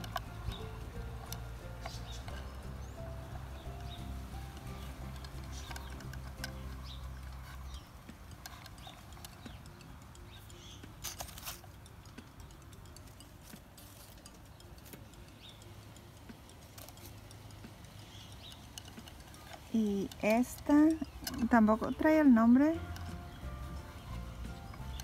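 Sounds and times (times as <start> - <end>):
faint background music: 0.0 - 25.0.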